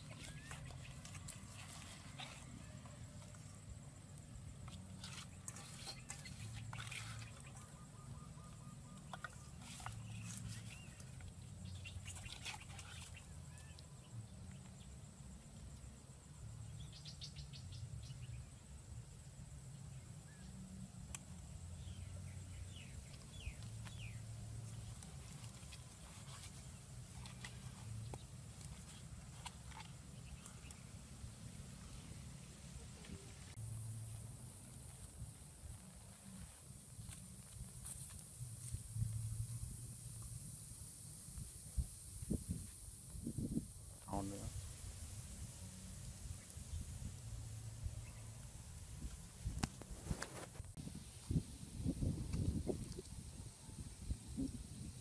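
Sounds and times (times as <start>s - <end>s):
bird chirps: 5.5s - 14.0s
wind on microphone: 41.3s - 48.2s, 48.8s - 55.0s.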